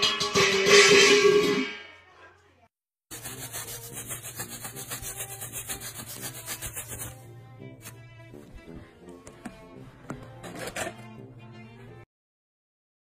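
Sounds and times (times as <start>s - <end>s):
fast rhythmic rubbing: 3.1s - 7.2s.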